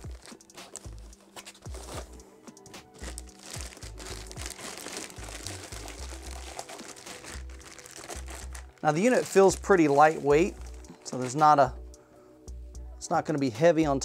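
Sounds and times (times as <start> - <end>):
plastic bag crinkling: 0.0 - 2.1, 3.0 - 11.6
background music with pulsing bass: 0.0 - 13.2.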